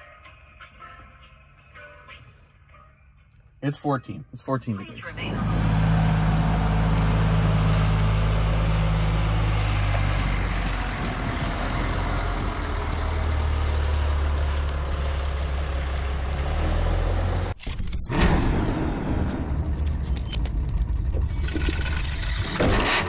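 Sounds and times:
diesel engine running: 4.9s - 23.0s.

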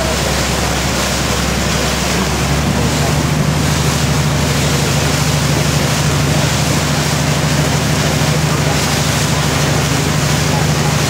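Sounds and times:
boat engine humming: 0.0s - 11.0s
water rushing: 0.0s - 11.0s.

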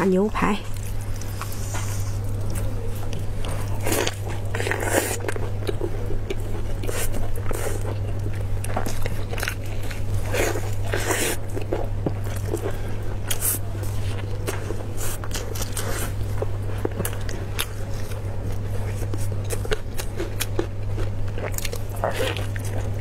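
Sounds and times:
low electrical hum: 0.0s - 23.0s
wet chewing and biting: 0.7s - 23.0s.

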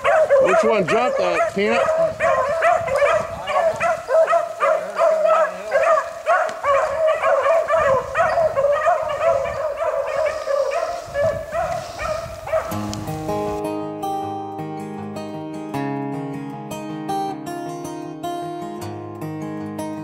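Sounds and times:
pack of hounds baying: 0.0s - 13.0s.

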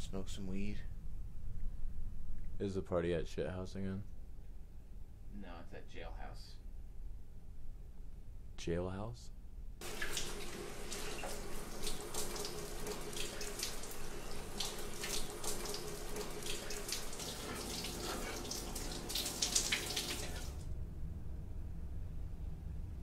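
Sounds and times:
shower spray splashing: 9.8s - 20.6s.

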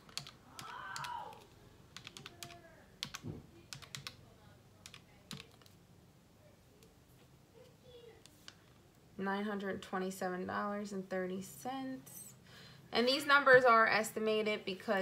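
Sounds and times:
calculator keys clicking: 0.0s - 4.2s, 4.8s - 5.7s.

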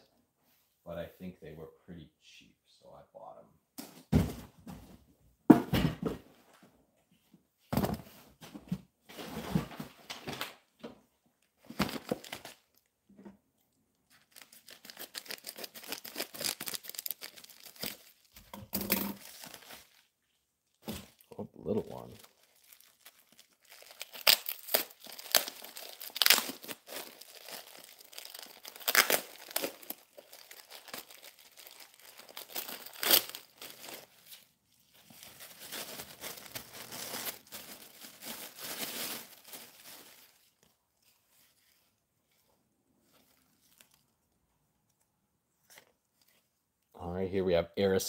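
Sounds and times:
tissue paper crinkling: 14.1s - 18.4s, 19.2s - 20.1s, 21.9s - 44.1s
plastic mailer tearing: 14.2s - 18.3s, 21.9s - 34.3s, 35.2s - 40.4s.

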